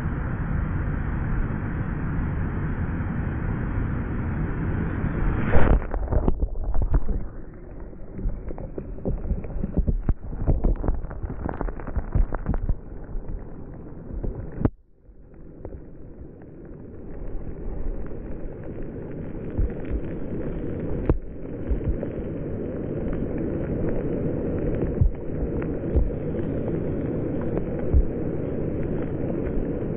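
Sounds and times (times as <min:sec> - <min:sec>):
ocean surf breaking: 0:04.6 - 0:14.1
fizzing foam and swirling water: 0:05.0 - 0:29.9.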